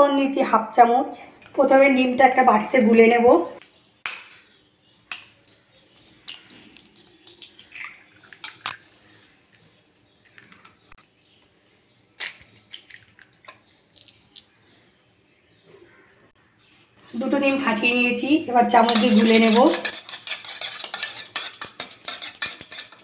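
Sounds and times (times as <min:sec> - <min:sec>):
eggshell crackling: 0:05.1 - 0:09.0, 0:10.2 - 0:14.6, 0:18.8 - 0:23.0.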